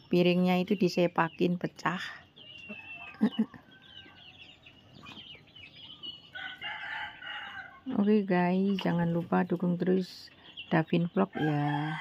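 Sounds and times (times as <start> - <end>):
chickens clucking: 0.0 - 12.0
rooster crowing: 6.4 - 7.8.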